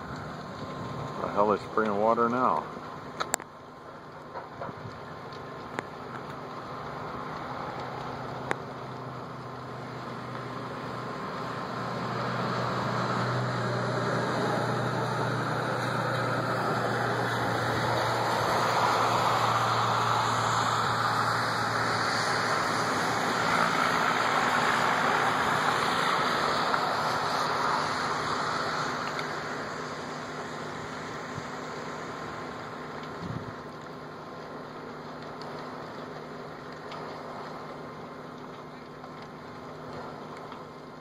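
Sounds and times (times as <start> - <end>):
truck driving past: 6.8 - 32.8.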